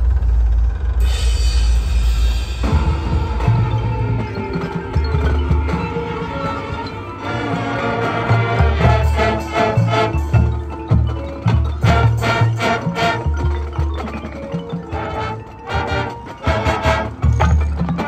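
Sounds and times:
marimbas and xylophones: 1.0 - 18.0
marching band playing: 2.4 - 18.0.

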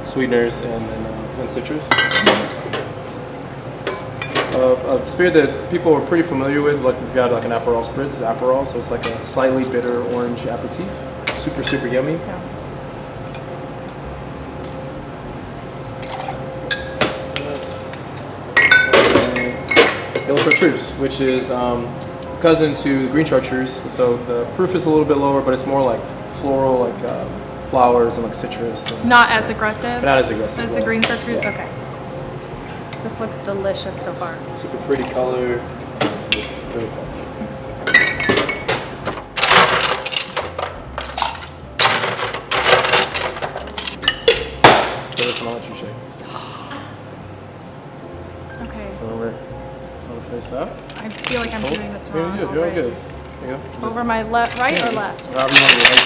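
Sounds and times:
metal shaker tins clinking: 39.4 - 45.8, 54.4 - 56.0.

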